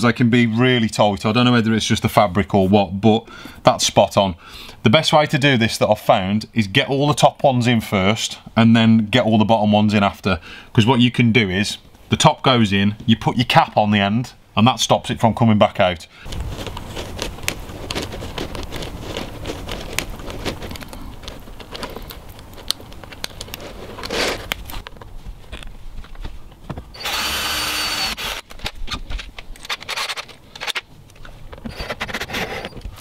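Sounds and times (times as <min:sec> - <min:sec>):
handling clicks and knocks: 0:16.3 - 0:26.9
curtain fabric rustling and scraping: 0:23.4 - 0:25.6
power drill running: 0:26.9 - 0:28.5.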